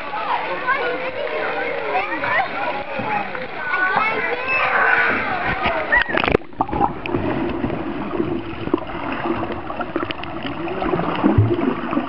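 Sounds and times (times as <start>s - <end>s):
underwater gurgling: 0.0s - 12.0s
water splash: 2.3s - 12.0s.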